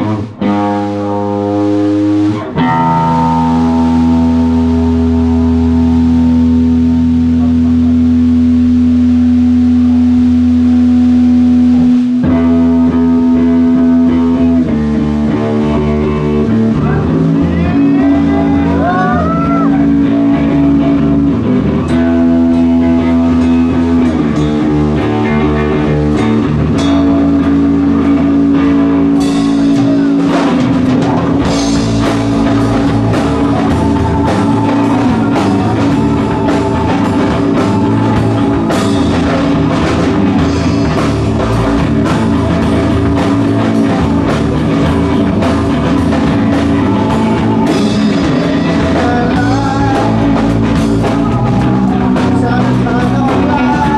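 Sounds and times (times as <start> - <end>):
distorted electric guitar: 0.0 - 53.9
drum kit and cymbals: 26.8 - 53.9.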